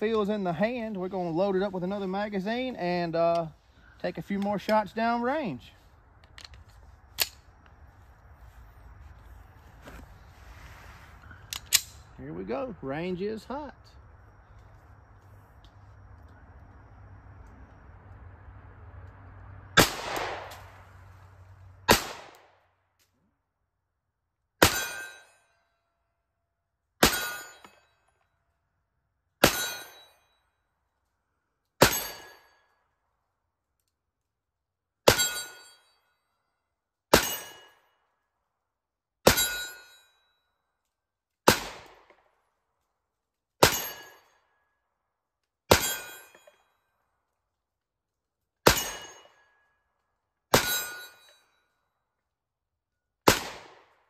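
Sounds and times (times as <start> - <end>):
pistol shots with ringing tail: 19.8 - 20.6, 21.9 - 22.5, 24.6 - 25.4, 27.0 - 27.8, 29.4 - 30.2, 31.8 - 32.6, 35.0 - 35.8, 37.1 - 37.9, 39.2 - 39.9, 41.5 - 42.1, 43.6 - 44.3, 45.7 - 46.5, 48.6 - 49.5, 50.5 - 51.4, 53.2 - 54.0.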